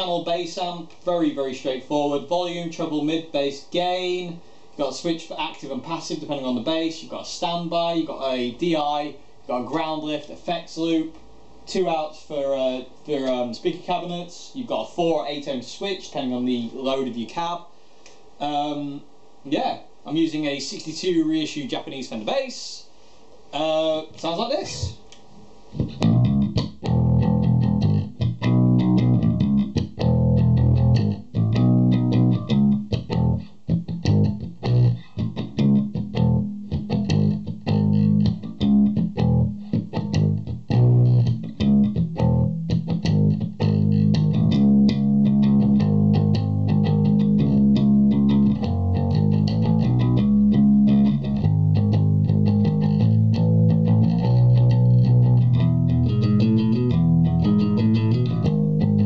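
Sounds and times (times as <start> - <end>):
bass guitar riff fingerstyle: 25.8 - 59.0.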